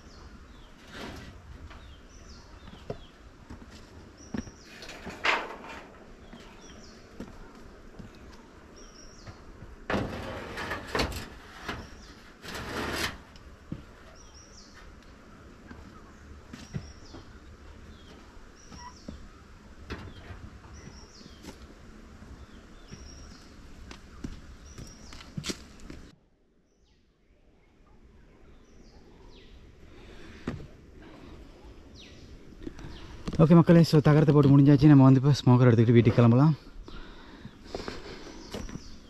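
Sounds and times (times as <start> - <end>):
tin roofing sheets scraping: 0.6 - 2.0, 4.6 - 6.6, 9.9 - 14.9.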